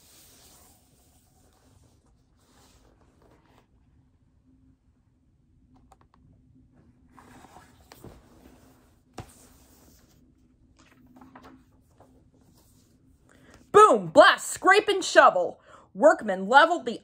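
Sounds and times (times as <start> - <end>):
book page turning: 0.1 - 3.7, 7.2 - 13.0
paper rustling: 7.2 - 13.0.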